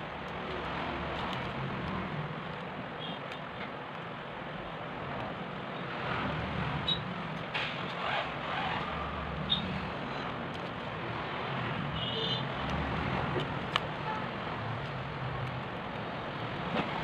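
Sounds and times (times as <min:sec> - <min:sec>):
steady background noise: 0:00.0 - 0:17.0
small clicks and rustles: 0:00.1 - 0:04.2, 0:10.1 - 0:11.0, 0:12.6 - 0:17.0.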